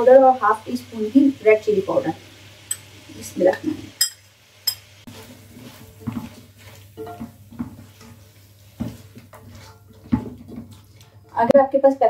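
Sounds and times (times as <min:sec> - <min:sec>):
spatula scraping a pan: 0:05.0 - 0:11.3.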